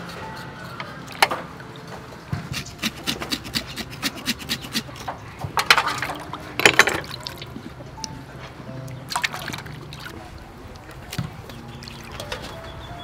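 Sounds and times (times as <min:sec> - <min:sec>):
knife scraping chicken skin: 0:00.0 - 0:01.0, 0:02.5 - 0:05.1.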